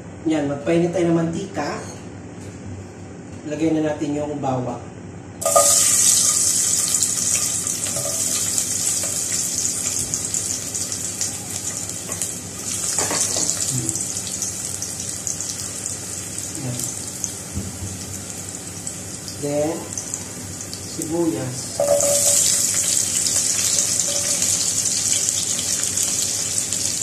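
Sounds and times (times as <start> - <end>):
garlic sizzling in hot oil: 5.4 - 21.0, 21.8 - 27.0.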